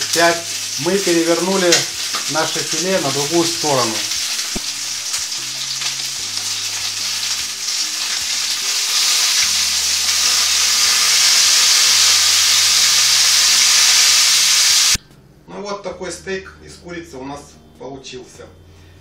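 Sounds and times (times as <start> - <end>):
chicken sizzling in frying pan: 0.0 - 15.0.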